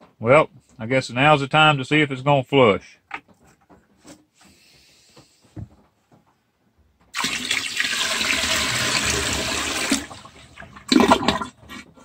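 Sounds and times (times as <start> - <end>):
water pouring into toilet bowl: 7.2 - 11.8.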